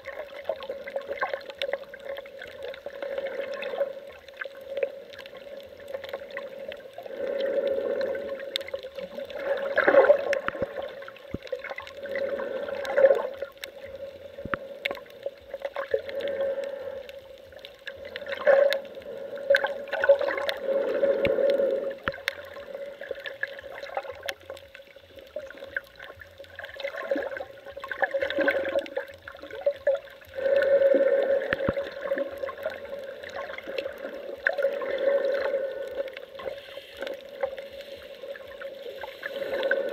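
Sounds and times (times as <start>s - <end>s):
underwater swishing and gurgling: 0.0s - 39.9s
small clicks: 0.2s - 30.3s.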